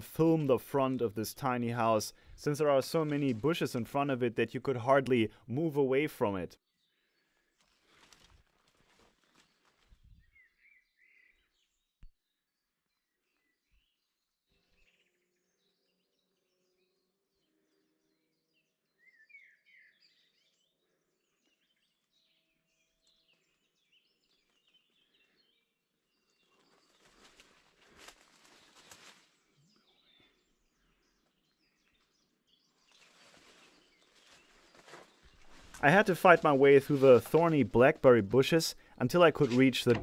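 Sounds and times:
birds chirping: 0.0s - 7.9s, 12.8s - 40.0s
rustling with crackles: 7.4s - 10.3s, 26.2s - 29.5s, 32.8s - 40.0s.

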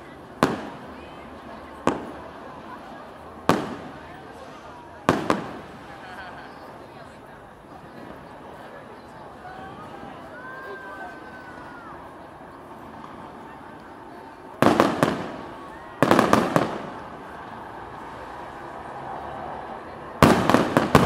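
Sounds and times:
crowd murmuring: 0.0s - 21.0s
fireworks bursting: 0.3s - 6.8s, 13.0s - 18.5s, 20.2s - 21.0s.

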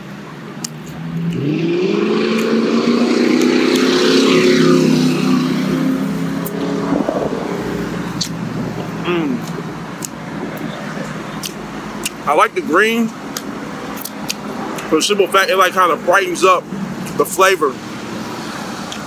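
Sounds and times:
vehicle driving past: 1.0s - 9.2s.

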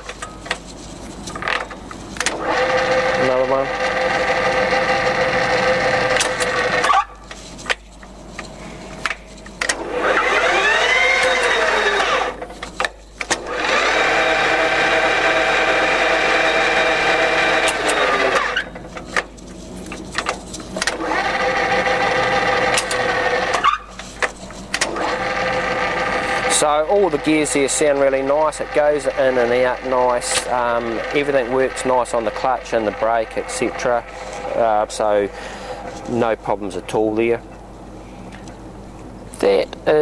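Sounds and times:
lathe headstock whine: 0.8s - 7.0s, 8.2s - 36.7s
gear lever clicks: 6.1s - 9.8s, 17.6s - 21.0s.

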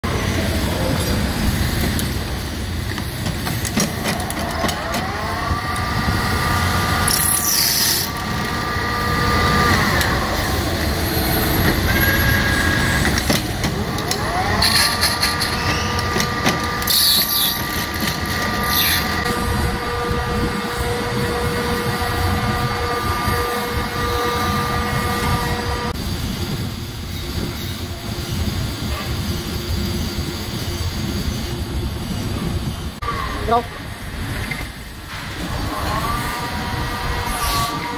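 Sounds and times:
metal lathe running: 3.6s - 26.0s.

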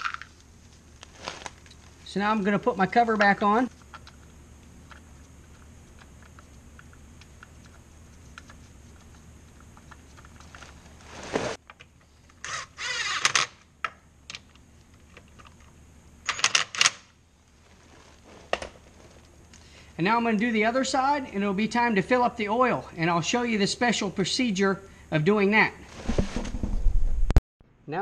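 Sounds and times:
cordless driver motor whine: 12.4s - 13.6s.

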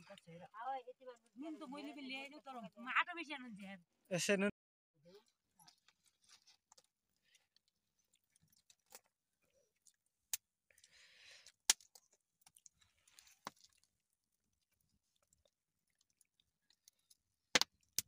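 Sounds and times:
wood fire crackling: 16.6s - 18.0s.

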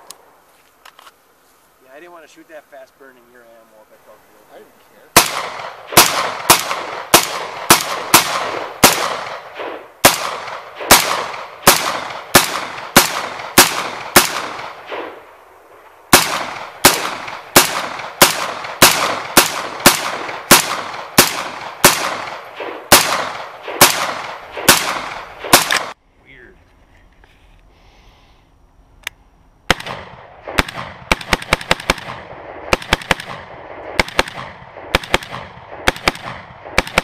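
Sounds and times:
gunshots with long echo: 5.1s - 26.0s, 29.7s - 37.0s.

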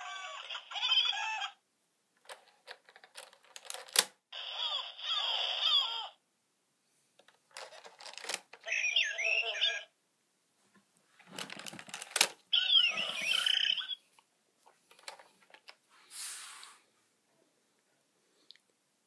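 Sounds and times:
toy animal sound from speaker: 0.0s - 1.6s, 4.4s - 6.2s, 8.6s - 9.9s, 12.5s - 14.1s
plastic clattering and clicks: 2.2s - 4.2s, 7.2s - 8.6s, 11.3s - 12.4s, 14.9s - 15.8s
brief hiss: 16.0s - 16.9s.

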